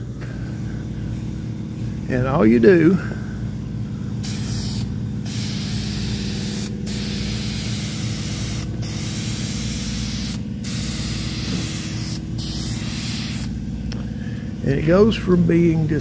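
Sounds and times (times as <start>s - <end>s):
steady low hum: 0.0s - 16.0s
aerosol can spraying: 4.2s - 13.6s.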